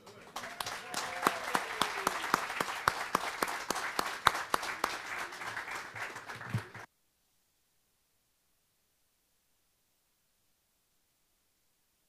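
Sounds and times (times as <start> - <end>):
audience applauding: 0.0 - 6.9
loud close hand claps: 0.0 - 6.9.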